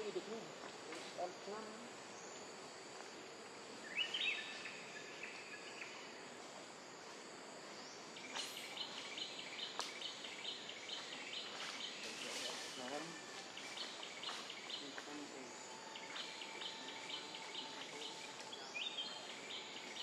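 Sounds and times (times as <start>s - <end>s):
high insect drone: 0.0s - 20.0s
bird calls: 3.8s - 6.2s, 7.9s - 20.0s.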